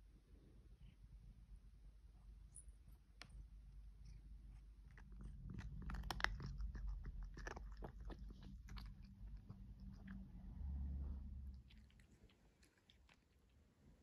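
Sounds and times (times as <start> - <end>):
cat crunching treats: 4.8 - 10.3, 11.5 - 13.7.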